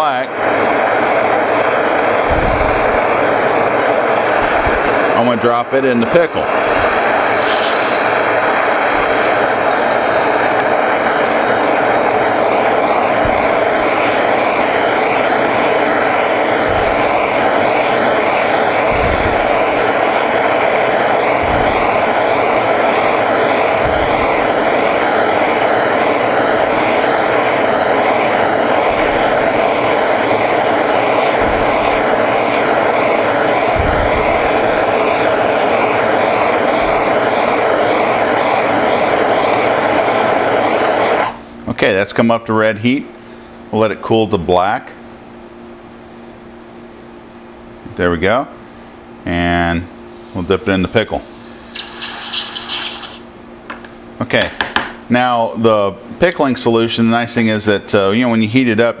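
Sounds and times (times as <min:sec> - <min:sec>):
torch flame rushing: 0:00.0 - 0:42.3, 0:50.0 - 0:53.4.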